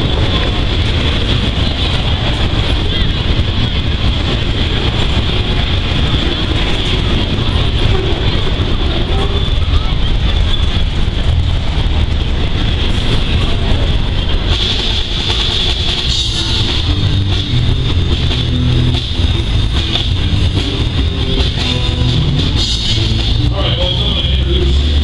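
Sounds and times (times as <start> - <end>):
freight train wheels on rails: 0.0 - 25.0
live rock band playing: 14.5 - 25.0.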